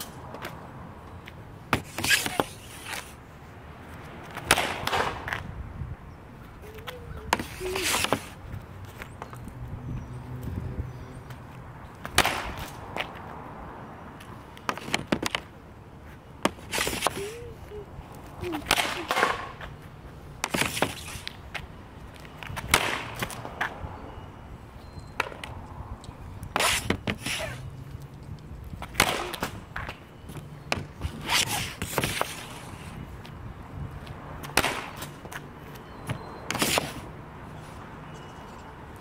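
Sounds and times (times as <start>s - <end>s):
hockey stick hitting puck on pavement: 1.2s - 3.2s, 4.2s - 5.5s, 6.8s - 8.4s, 12.0s - 13.3s, 14.2s - 15.6s, 16.4s - 17.4s, 18.6s - 19.7s, 20.4s - 21.6s, 22.2s - 23.8s, 25.2s - 25.6s, 26.4s - 27.6s, 28.7s - 30.0s, 30.6s - 32.7s, 34.4s - 35.4s, 36.1s - 37.1s.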